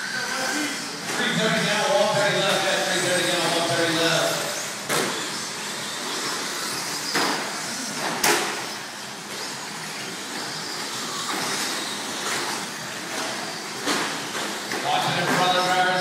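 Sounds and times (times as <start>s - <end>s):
toy truck motors whining: 0.0s - 16.0s.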